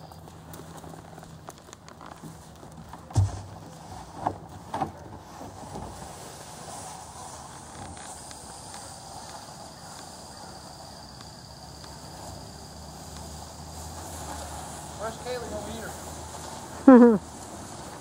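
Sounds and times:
steady outdoor hiss: 0.0 - 18.0
faint high insect drone: 5.7 - 18.0.

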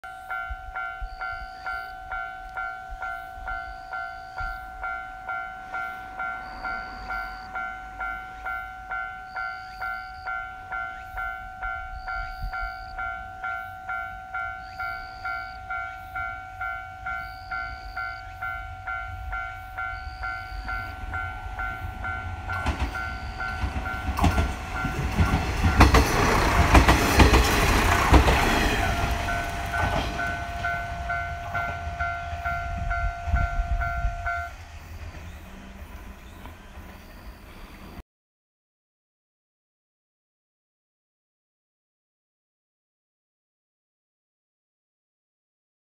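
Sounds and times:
level-crossing bell ringing: 0.0 - 34.6
diesel train rumbling past: 0.3 - 38.0.

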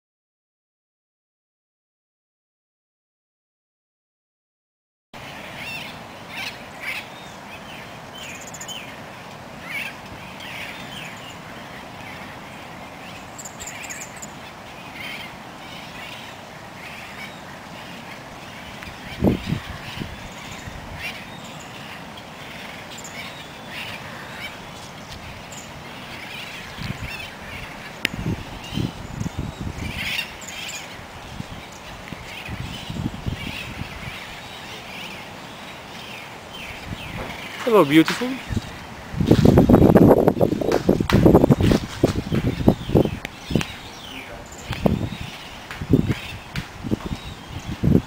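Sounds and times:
small birds chirping: 5.2 - 48.0
steady outdoor hiss: 5.2 - 48.0.

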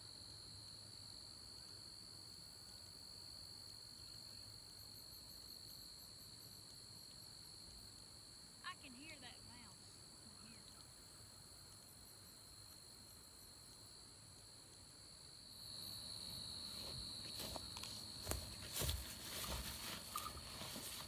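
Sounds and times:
high-pitched insect chorus: 0.0 - 21.0.

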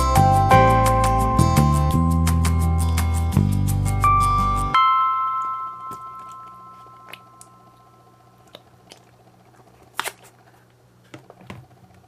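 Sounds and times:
slime squishing: 8.4 - 10.7.

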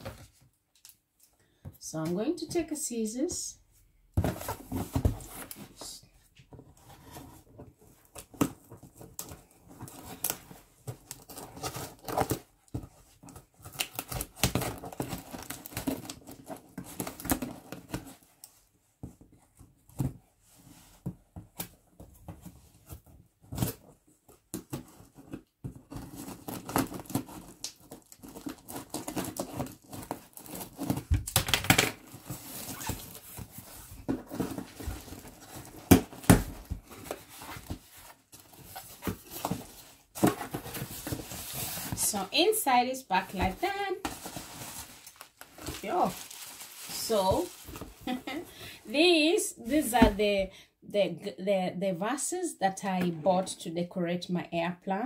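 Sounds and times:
cardboard rustling and knocking: 4.1 - 5.8, 19.0 - 42.2, 43.3 - 48.4
tape ripping: 26.0 - 33.2.

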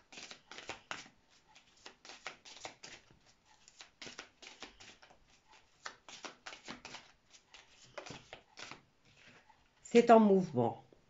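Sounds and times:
cards being shuffled: 0.1 - 9.4.

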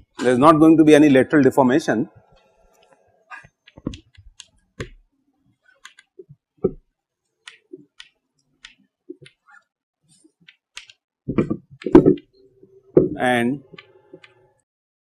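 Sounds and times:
chalk tapping on a blackboard: 10.4 - 12.3.

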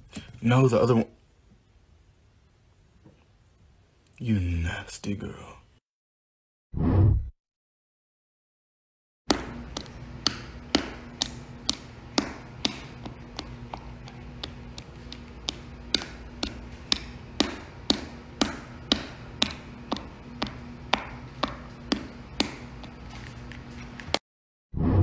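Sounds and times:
low steady hum: 9.3 - 24.2.

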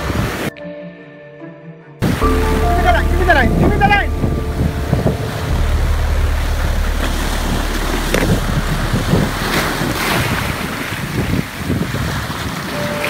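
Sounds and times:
wind buffeting microphone: 3.5 - 13.0.

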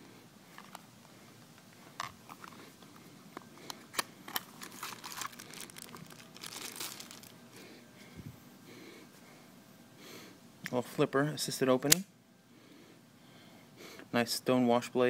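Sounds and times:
plastic bag crinkling: 4.3 - 7.6.

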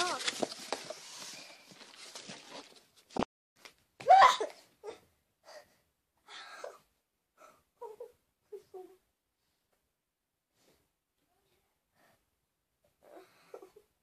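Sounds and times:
girl's loud vocal outburst: 4.0 - 5.0
faint breathy sounds: 4.8 - 9.8, 10.5 - 14.0.

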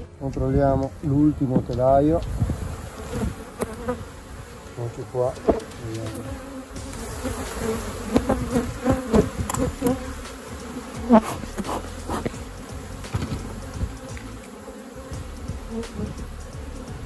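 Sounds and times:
bees buzzing: 0.0 - 17.0
wooden frame handling knocks: 13.0 - 14.2.

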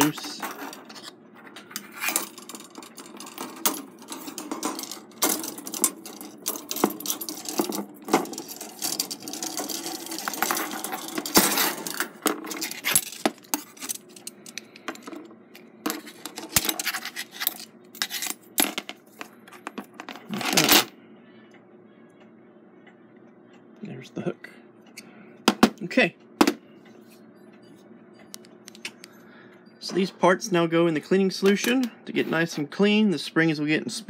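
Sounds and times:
metal spring clinking and scraping: 0.0 - 15.1.

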